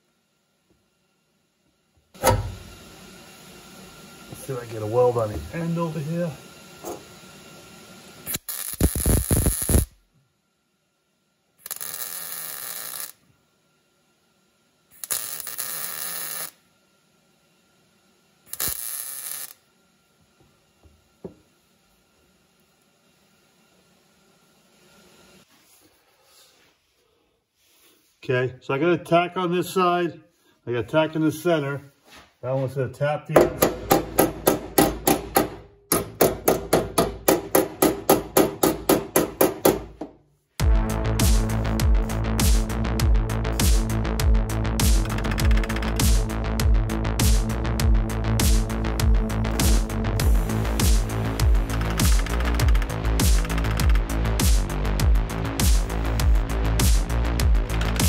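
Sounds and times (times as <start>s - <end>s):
welding arc crackling: 2.2s - 10.0s, 11.6s - 13.2s, 14.9s - 16.6s, 18.5s - 19.6s, 40.6s - 58.0s
hammer rapping on sheet steel: 33.3s - 40.2s.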